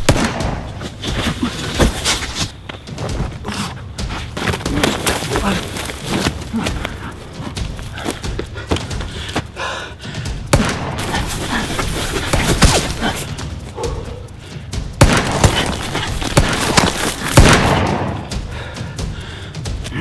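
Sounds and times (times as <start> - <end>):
sharp heavy hits and thuds: 14.6 - 19.9.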